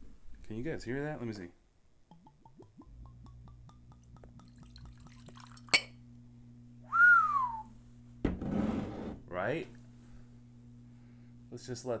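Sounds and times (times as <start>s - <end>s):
glass clink: 3.0s - 6.0s.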